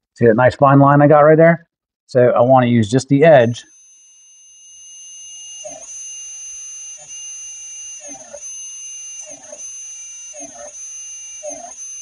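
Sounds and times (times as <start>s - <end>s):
small motor whining: 3.6s - 12.0s.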